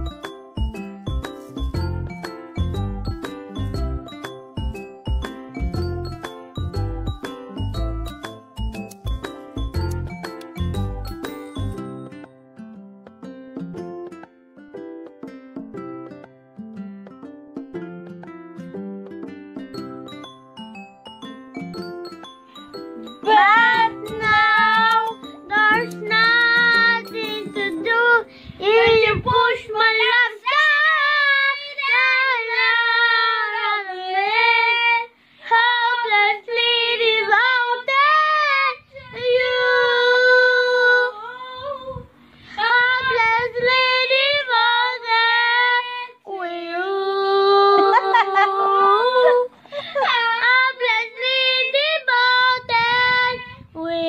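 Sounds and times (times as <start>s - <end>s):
plucked string music: 5.2s - 20.3s, 22.8s - 28.2s
girl singing unaccompanied: 23.0s - 54.0s.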